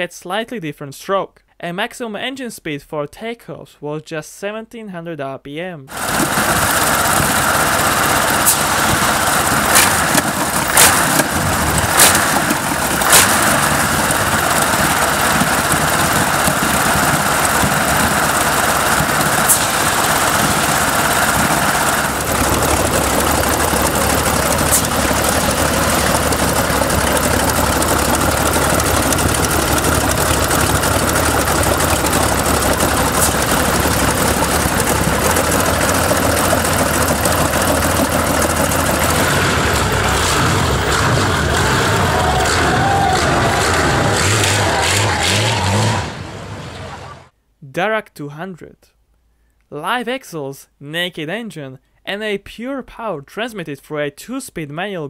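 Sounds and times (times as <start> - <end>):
aero engine starting and idling: 5.9 - 47.3.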